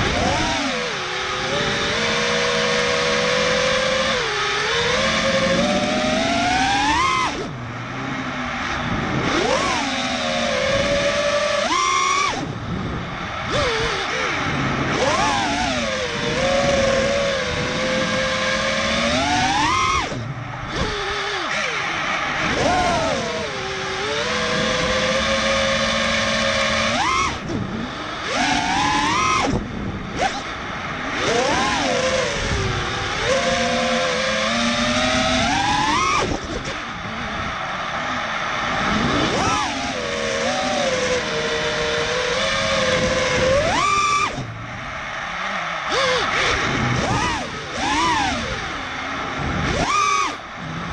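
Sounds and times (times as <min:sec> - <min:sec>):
drone motors whining: 0:00.0 - 0:50.9
rushing wind noise: 0:07.5 - 0:11.4, 0:12.3 - 0:19.0, 0:40.8 - 0:43.8.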